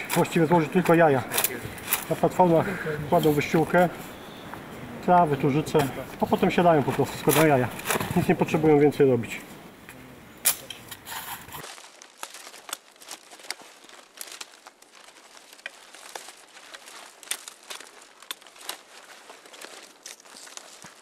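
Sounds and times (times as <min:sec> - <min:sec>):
twigs snapping and rustling: 0:00.0 - 0:02.5, 0:05.1 - 0:08.6, 0:11.6 - 0:21.0.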